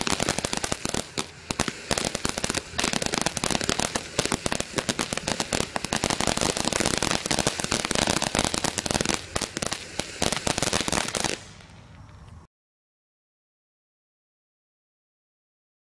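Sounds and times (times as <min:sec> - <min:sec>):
firework fountain crackling: 0:00.0 - 0:12.3
faint hiss: 0:00.0 - 0:12.5.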